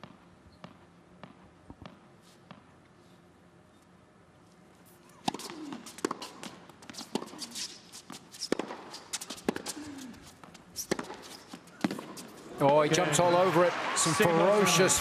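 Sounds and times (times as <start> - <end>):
shoes squeaking on court: 4.8 - 12.5
racket hitting tennis ball: 5.2 - 12.4.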